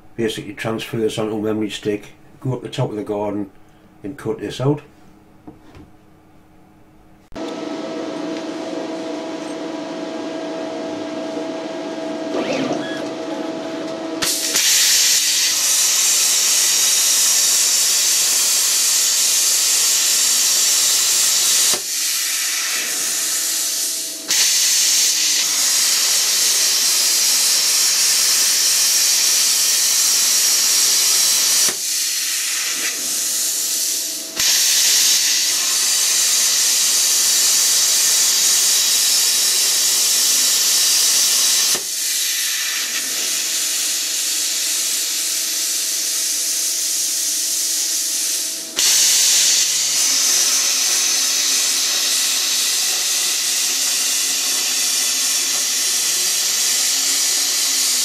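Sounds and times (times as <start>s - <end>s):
machine hum: 0.0s - 44.2s
plasma arc hissing: 14.2s - 58.0s.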